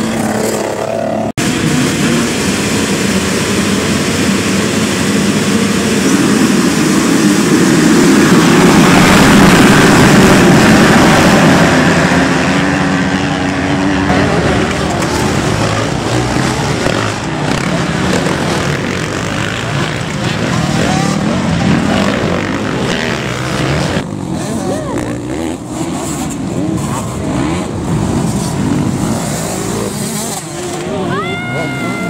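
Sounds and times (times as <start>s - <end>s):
motocross bikes at full throttle: 0.0s - 32.0s.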